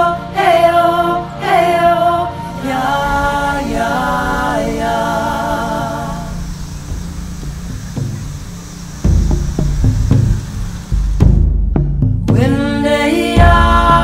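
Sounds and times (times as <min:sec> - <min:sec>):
unaccompanied voices singing: 0:00.0 - 0:08.4, 0:12.3 - 0:14.0.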